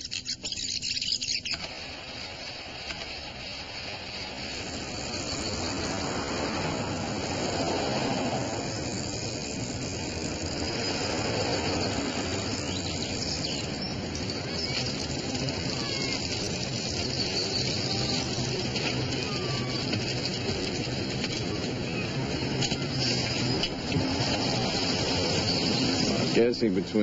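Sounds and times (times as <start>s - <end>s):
faint bird chirps: 0.0s - 1.7s
outdoor background noise: 0.0s - 27.0s.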